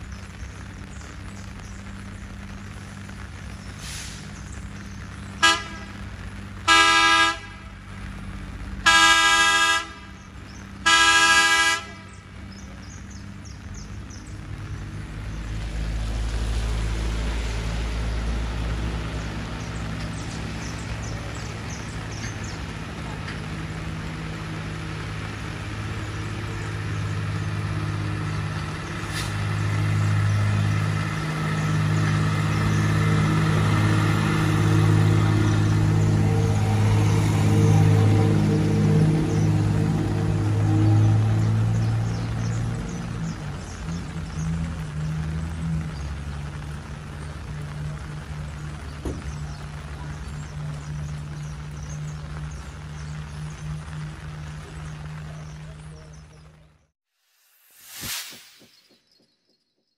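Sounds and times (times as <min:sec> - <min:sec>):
low engine hum: 0:00.0 - 0:56.9
rain hissing: 0:00.0 - 0:58.9
engine passing by: 0:03.4 - 0:56.9
rail vehicle horn blasts: 0:05.4 - 0:06.0, 0:06.7 - 0:07.6, 0:08.8 - 0:10.2, 0:10.8 - 0:12.1.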